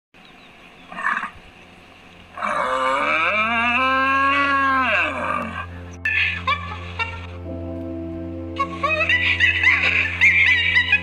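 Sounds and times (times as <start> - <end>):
cow mooing: 2.4 - 6.4.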